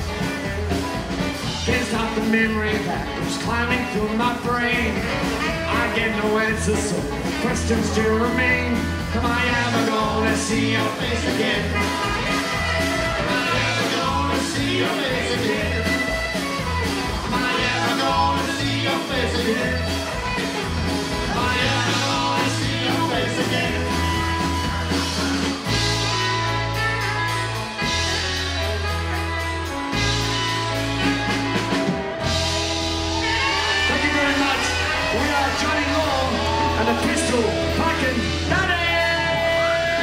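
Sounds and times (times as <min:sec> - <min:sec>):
bass guitar: 0:00.0 - 0:40.0
drums: 0:00.0 - 0:40.0
saxophone solo: 0:04.9 - 0:06.2, 0:11.5 - 0:14.3, 0:15.7 - 0:17.4, 0:23.6 - 0:37.8.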